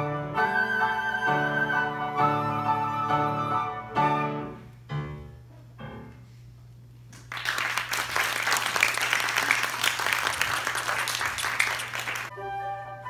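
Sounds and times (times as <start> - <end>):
recorder and piano notes: 0.0 - 6.3, 12.3 - 13.0
audience applauding: 7.2 - 12.3.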